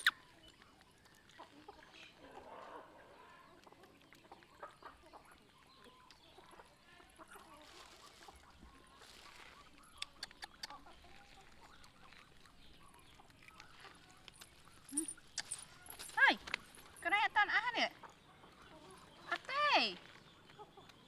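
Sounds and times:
small sharp clicks: 10.0 - 10.8.

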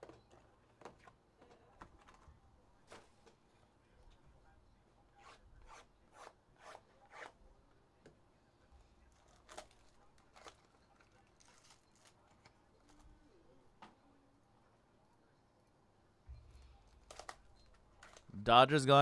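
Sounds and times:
plastic shrink wrap crinkling: 9.1 - 13.1.

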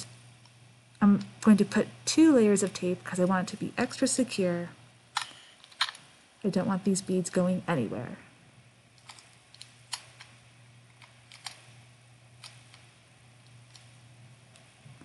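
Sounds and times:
low steady hum: 0.0 - 15.0
tape wrapping clicks: 5.2 - 6.0.

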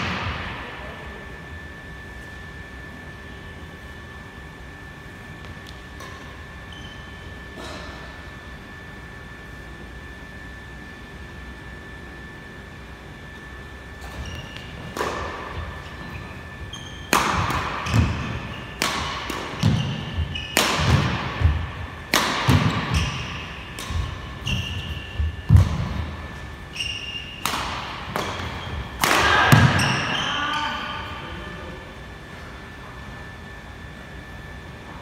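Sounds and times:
shoes squeaking on court floor: 5.3 - 8.2, 13.3 - 31.3
racket hitting shuttlecock: 14.0 - 15.8, 17.0 - 26.2, 27.0 - 30.1.

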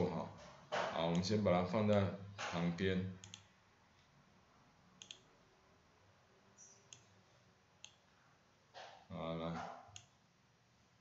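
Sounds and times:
computer mouse clicking: 3.2 - 3.5, 5.0 - 5.3, 6.6 - 7.1, 7.8 - 8.0, 9.9 - 10.2.

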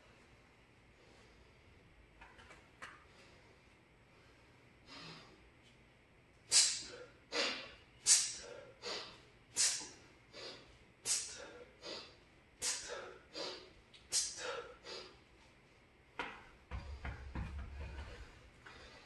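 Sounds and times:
man breathing forcefully: 6.5 - 15.4, 16.8 - 19.0.

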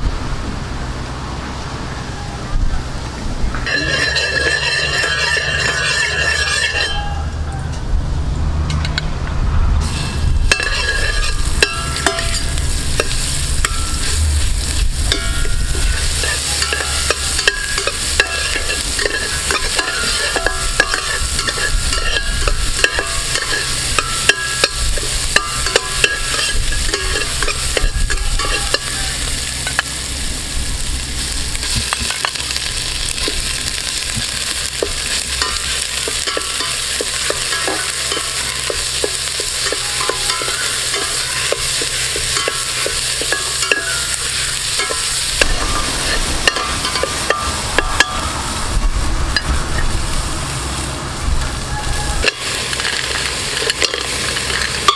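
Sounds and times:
chilies sizzling in hot oil: 3.4 - 7.3, 9.8 - 54.9
metal spatula scraping a pot: 3.6 - 7.2, 9.8 - 29.8, 33.2 - 48.3, 51.8 - 54.9.

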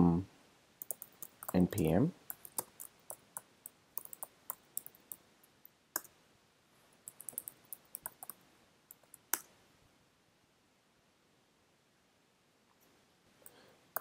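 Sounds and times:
computer keyboard keystrokes clicking: 0.8 - 5.2, 7.1 - 9.4.

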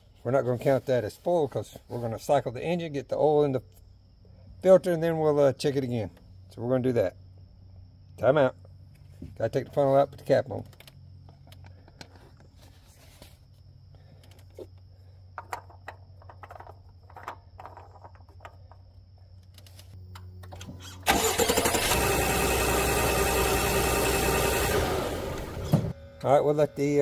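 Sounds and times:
car engine starting and running: 20.4 - 26.3.

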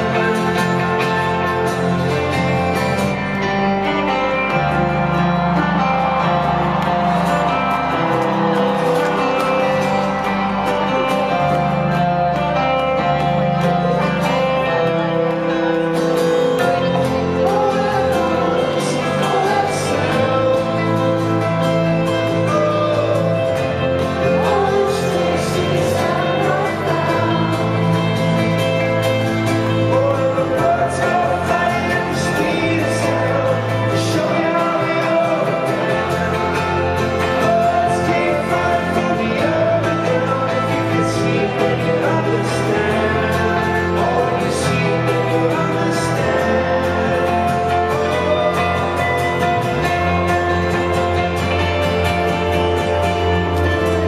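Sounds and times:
man singing: 0.0 - 5.2, 16.4 - 54.0
live rock band playing: 0.0 - 54.0.

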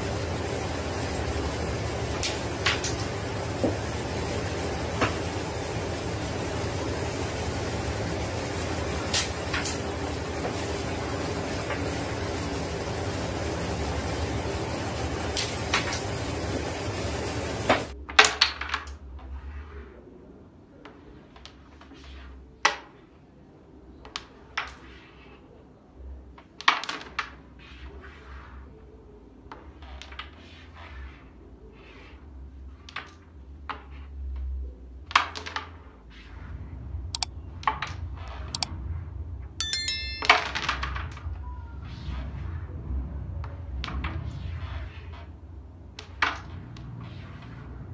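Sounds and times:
electronic chime: 39.6 - 40.7.

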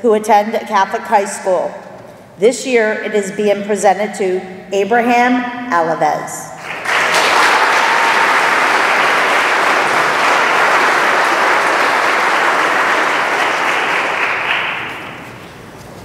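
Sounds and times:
audience applauding: 6.6 - 15.3.

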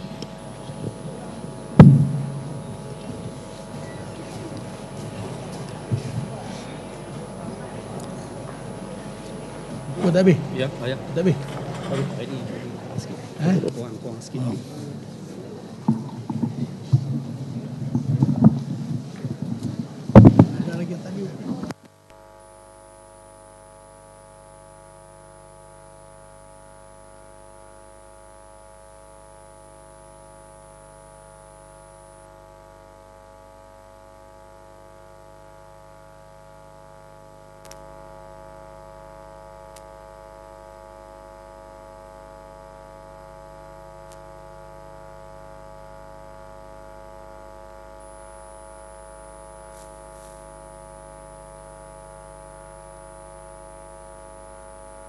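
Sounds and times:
electrical mains hum: 0.0 - 55.0
click: 37.6 - 37.8.

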